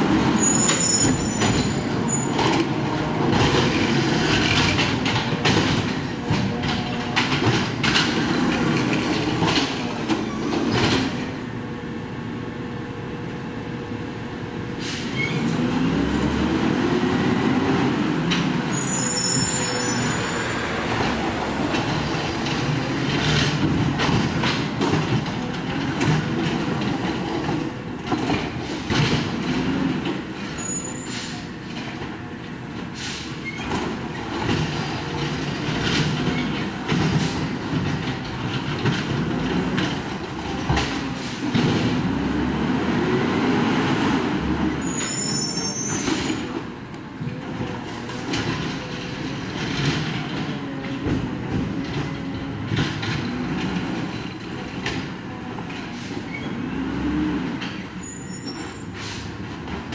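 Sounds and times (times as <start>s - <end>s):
high squeals: 0.4s - 2.4s, 18.7s - 20.6s, 44.8s - 46.1s
garbage truck engine revving: 14.8s - 19.0s, 33.8s - 45.0s
hydraulic arm handling carts: 18.2s - 59.9s.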